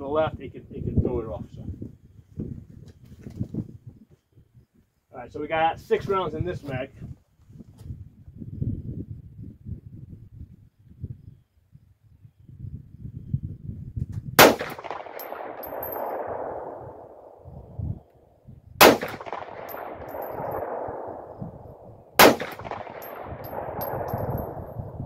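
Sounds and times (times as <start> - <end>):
pistol shots with echo: 14.4 - 17.6, 18.8 - 25.0.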